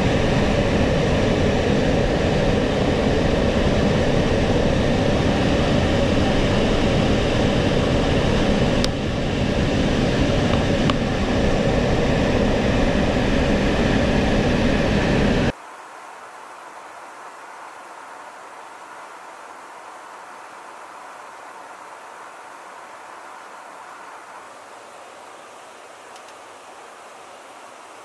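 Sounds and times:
jet engine and airflow rush: 0.0s - 15.6s.

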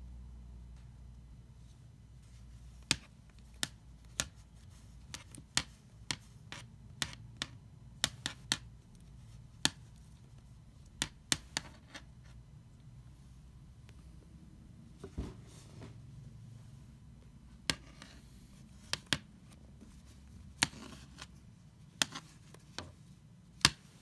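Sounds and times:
marker clicking on wooden floor: 5.0s - 8.7s.

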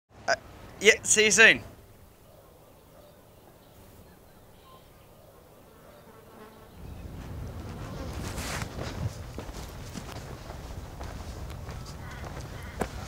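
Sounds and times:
flies buzzing: 4.8s - 9.3s.

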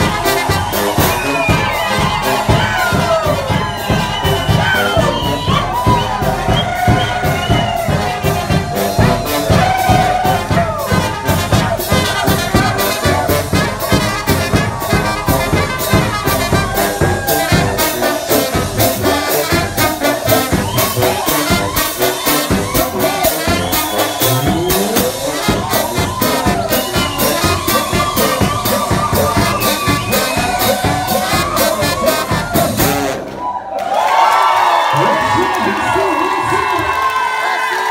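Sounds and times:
bass drum and cymbal beat: 0.0s - 33.2s
brass band playing dance tune: 0.0s - 37.9s.

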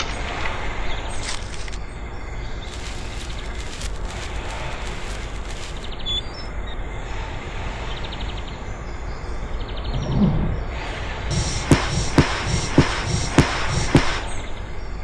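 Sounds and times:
low workshop hum: 2.7s - 6.0s, 10.6s - 14.3s
faint high chirps: 4.8s - 6.5s
dull low thump: 9.9s - 14.3s.

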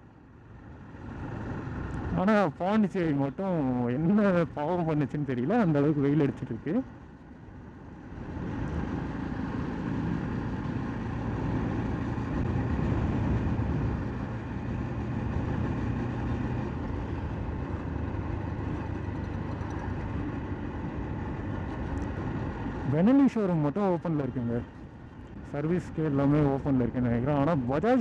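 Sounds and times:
road and wind noise: 0.0s - 28.0s
motorcycle engine running: 6.9s - 23.2s.

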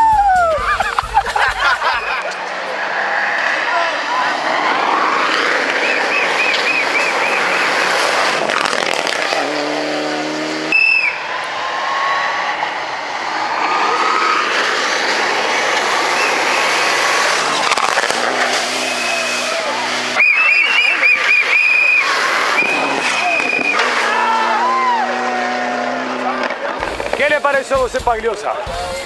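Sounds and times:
rally car engines revving: 0.6s - 29.0s
tyres hissing on gravel: 14.3s - 20.0s.

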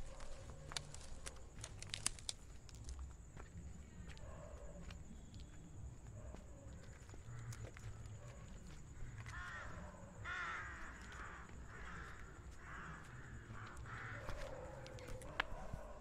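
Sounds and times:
crows cawing: 9.0s - 15.6s.

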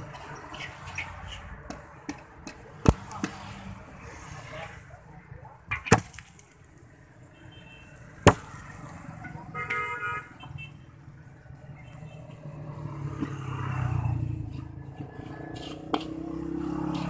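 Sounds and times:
vehicle horn toot: 9.4s - 10.7s.

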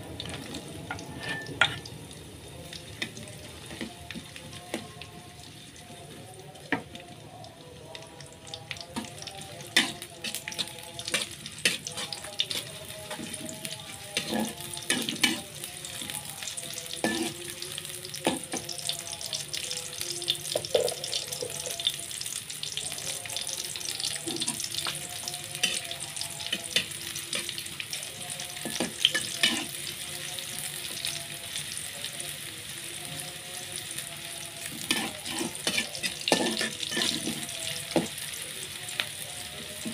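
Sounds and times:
garlic sizzling in oil: 0.1s - 39.9s
spatula scraping a pan: 1.0s - 1.8s, 9.8s - 15.5s, 17.0s - 17.4s, 28.7s - 29.8s, 34.8s - 37.6s.

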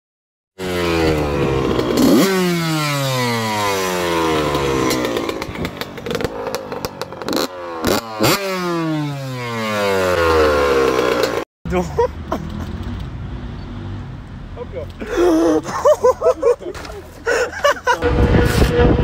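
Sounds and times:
dirt bike engine revving: 0.6s - 11.4s.

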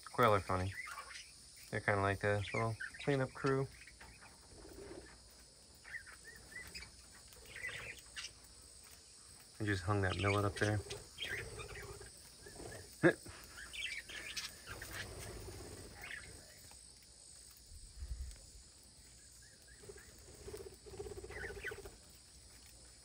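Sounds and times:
budgerigars chirping: 5.8s - 8.4s, 9.7s - 12.8s, 13.4s - 15.1s.

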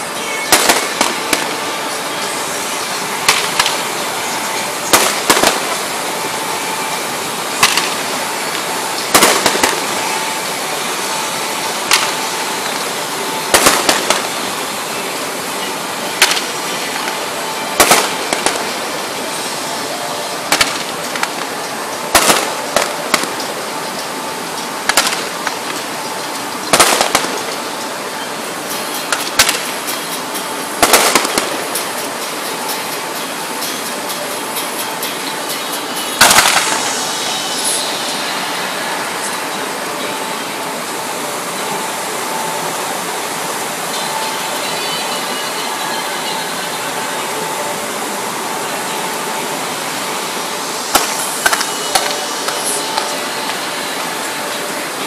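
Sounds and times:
steady rushing noise: 0.0s - 55.0s
fireworks bursting with sharp bangs: 0.3s - 19.5s, 20.3s - 39.4s, 50.8s - 54.2s.

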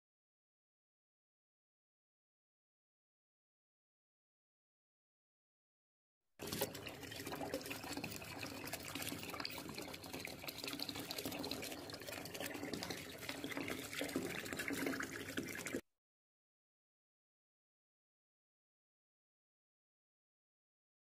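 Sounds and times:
tap water running into bathtub: 6.4s - 15.8s.

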